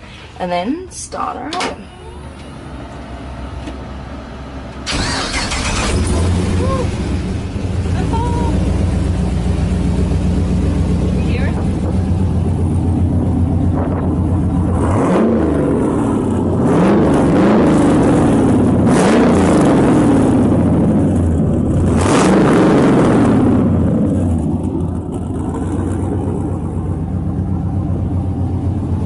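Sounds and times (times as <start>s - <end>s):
car engine idling: 1.1s - 29.0s
car engine revving: 4.8s - 29.0s
sharp exhaust bursts: 4.9s - 9.6s.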